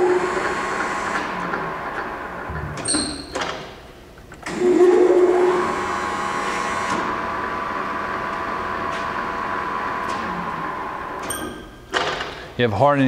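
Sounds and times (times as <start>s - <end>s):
lathe motor and spindle whine: 0.0s - 1.9s, 4.5s - 11.2s.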